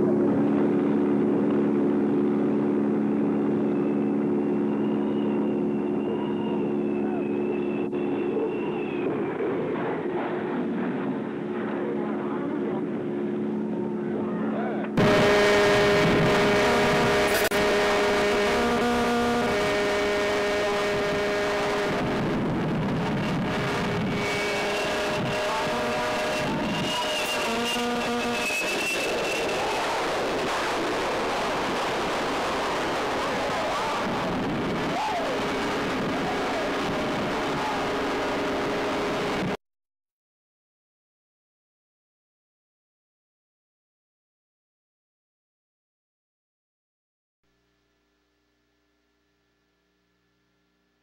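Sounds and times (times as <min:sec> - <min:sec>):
constant low hum: 0:00.0 - 0:39.6
jet engine drone: 0:00.0 - 0:39.6
rough rushing noise: 0:15.0 - 0:39.6
thin high whine: 0:15.0 - 0:39.6.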